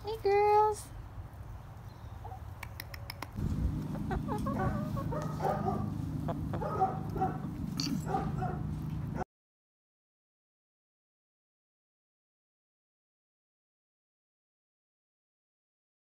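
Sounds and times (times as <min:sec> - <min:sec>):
hens clucking softly: 0:02.2 - 0:08.4
steady low hum: 0:03.4 - 0:09.2.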